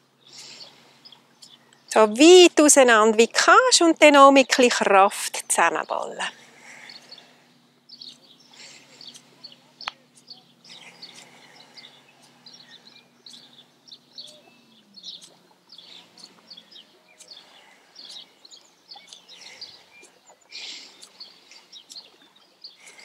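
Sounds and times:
faint low hum: 0.0s - 23.0s
small birds chirping: 0.0s - 23.0s.

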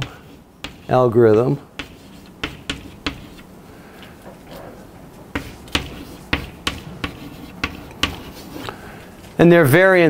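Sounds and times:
chalk tapping on blackboard: 0.0s - 3.4s, 5.3s - 8.6s.

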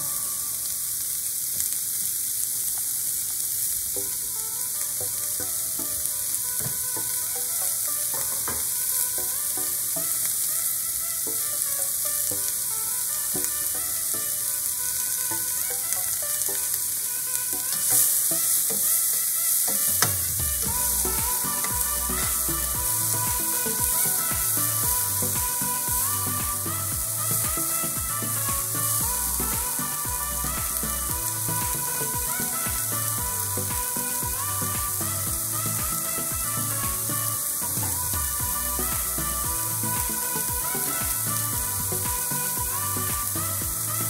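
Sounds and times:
vegetables sizzling in a pan: 17.8s - 20.0s.

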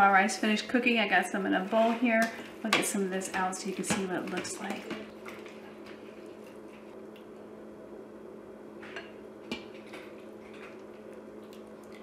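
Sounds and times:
faint steady hum: 0.0s - 12.0s
wet food squishing: 4.6s - 7.4s, 9.6s - 12.0s.

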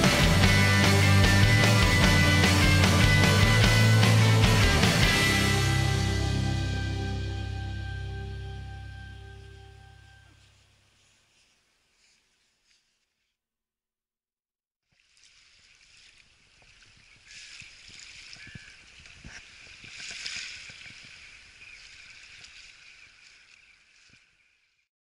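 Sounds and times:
small waves washing on sand: 15.0s - 24.4s.

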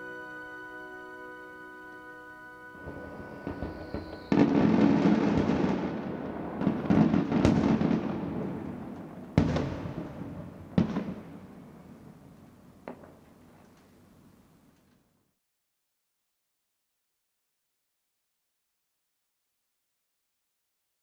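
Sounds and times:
fireworks bursting and crackling: 0.0s - 13.7s
sharp firework bangs: 2.8s - 11.5s.

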